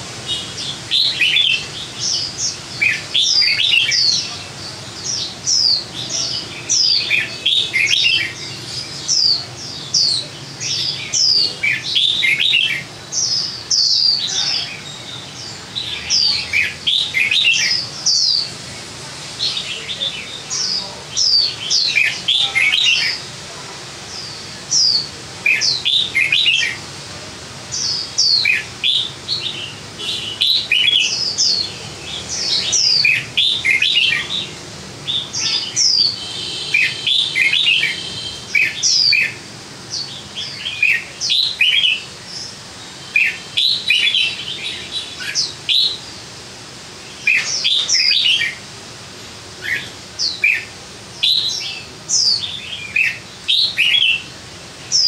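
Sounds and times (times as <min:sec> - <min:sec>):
songbird whistling and chirping: 0:00.4 - 0:04.4, 0:05.0 - 0:18.5, 0:24.2 - 0:26.8, 0:27.7 - 0:34.5, 0:35.1 - 0:46.2, 0:47.2 - 0:48.6, 0:49.6 - 0:54.3.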